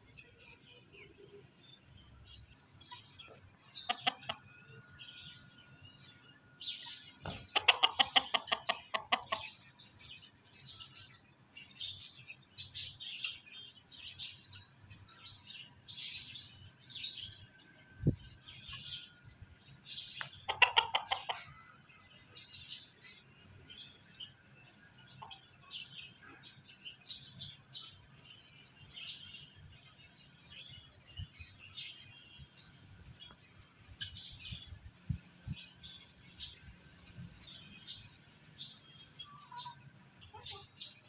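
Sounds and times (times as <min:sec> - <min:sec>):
hen clucking: 0:02.9 - 0:04.5, 0:06.9 - 0:09.6, 0:20.2 - 0:21.7.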